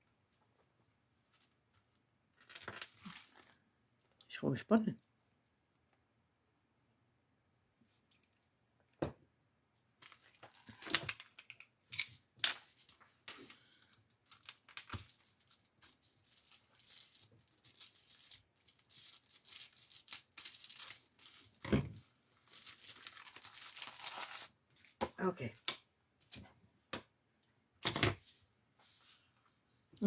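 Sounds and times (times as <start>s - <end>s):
plastic wrapper crinkling: 1.3s - 3.8s, 10.0s - 12.1s, 13.7s - 25.0s.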